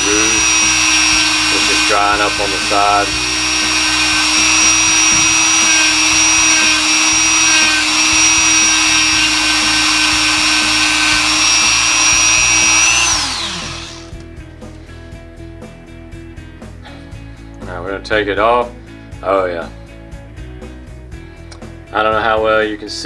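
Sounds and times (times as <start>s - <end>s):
rotary tool whining: 0.0s - 14.2s.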